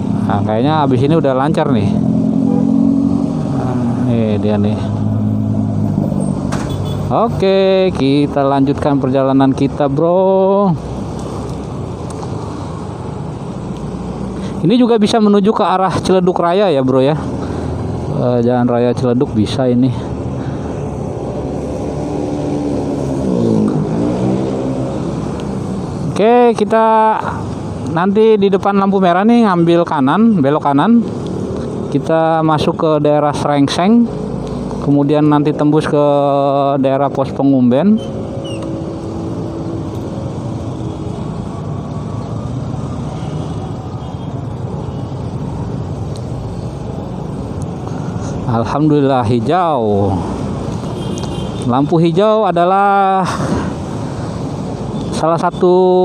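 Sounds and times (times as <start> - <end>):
hum of city traffic: 0.0 - 56.0
road noise hiss: 0.0 - 56.0
motorcycle engine revving: 1.8 - 6.7.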